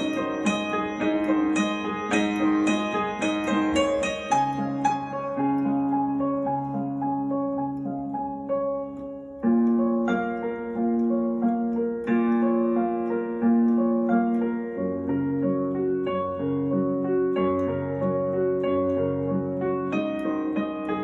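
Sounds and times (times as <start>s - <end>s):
piano arpeggios: 0.0s - 21.0s.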